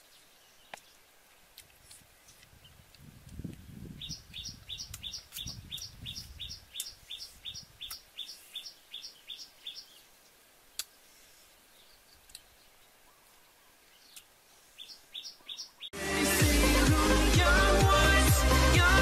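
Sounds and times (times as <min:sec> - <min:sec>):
leaves rustling: 0:00.0 - 0:17.8
bird chirping: 0:03.7 - 0:16.0.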